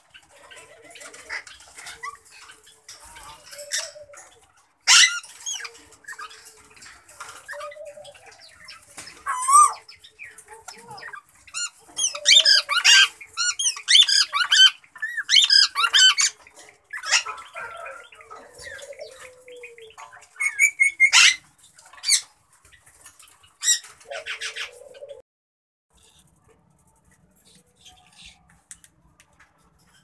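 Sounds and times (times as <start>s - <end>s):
parakeets squawking: 4.8s - 6.4s, 8.6s - 19.1s, 20.4s - 21.4s.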